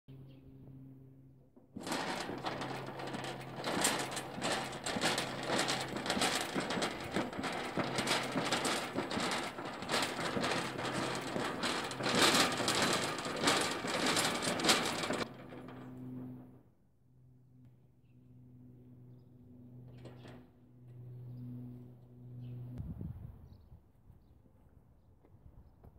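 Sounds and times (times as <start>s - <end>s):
metal cage rattling and clattering: 1.8s - 16.1s.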